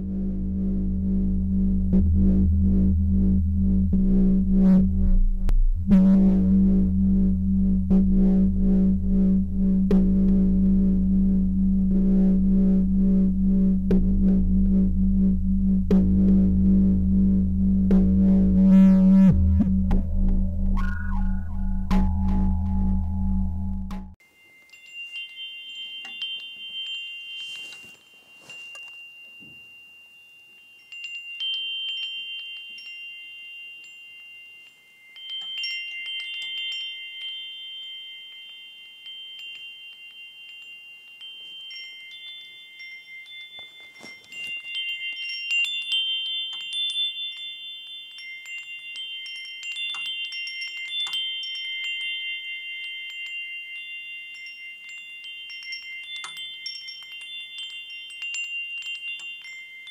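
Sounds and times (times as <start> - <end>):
wind chimes ringing: 24.2 - 59.9.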